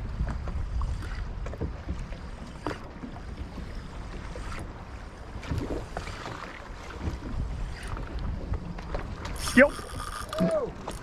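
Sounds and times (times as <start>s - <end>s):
water slapping against boat hull: 0.0s - 11.0s
wind buffeting microphone: 0.0s - 11.0s
short splashes: 9.2s - 11.0s.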